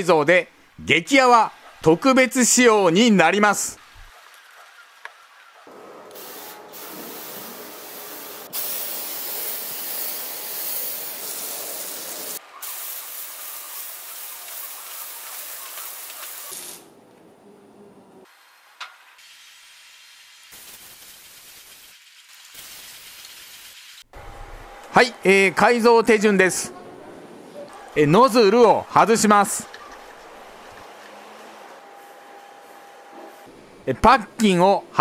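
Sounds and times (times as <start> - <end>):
sprayer hissing mist: 6.1 - 16.9.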